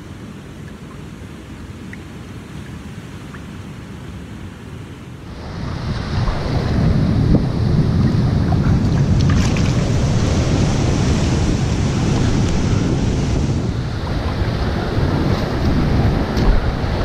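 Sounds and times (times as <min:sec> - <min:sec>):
wind buffeting microphone: 0:02.7 - 0:17.0
surf washing over rocks: 0:05.2 - 0:17.0.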